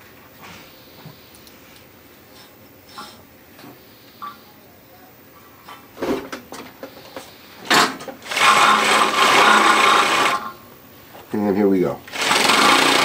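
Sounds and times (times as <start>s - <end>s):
sewing machine running: 8.2s - 10.5s, 12.1s - 13.0s.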